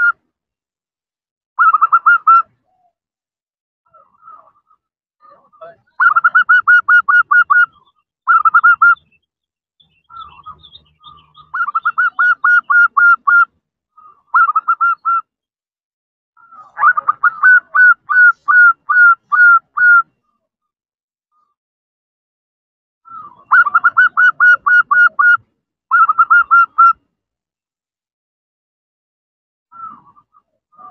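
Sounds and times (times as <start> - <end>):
dove calling high clipped notes: 0.0 - 0.2, 1.6 - 2.9, 3.9 - 15.3, 16.4 - 20.4, 23.0 - 27.0, 29.7 - 30.9.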